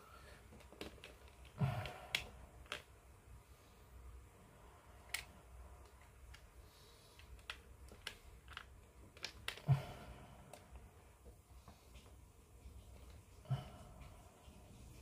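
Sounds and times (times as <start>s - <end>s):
plastic parts clicking and tapping: 0.4s - 3.0s, 5.1s - 6.5s, 7.1s - 9.7s.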